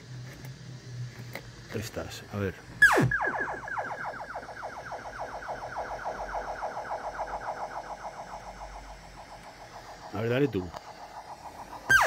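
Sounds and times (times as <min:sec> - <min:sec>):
synth tone echoes: 0:02.8 - 0:12.0.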